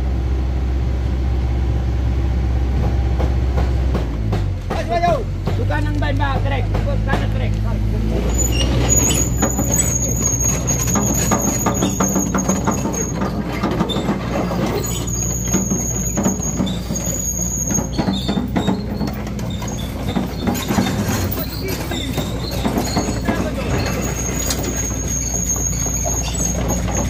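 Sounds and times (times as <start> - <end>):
truck engine humming: 0.0 - 27.0
high thin squeal: 8.2 - 27.0
rattles and clicks: 8.9 - 27.0.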